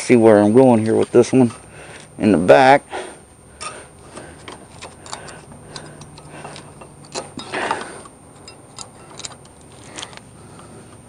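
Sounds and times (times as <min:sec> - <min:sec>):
metallic clicks and scrapes: 0:03.6 - 0:10.3.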